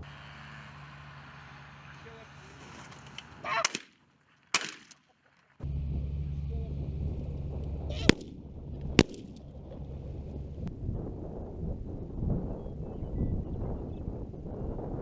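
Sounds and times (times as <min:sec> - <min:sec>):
shotgun blasts: 0:03.5 - 0:05.0, 0:07.9 - 0:09.5
wind on microphone: 0:06.9 - 0:15.0.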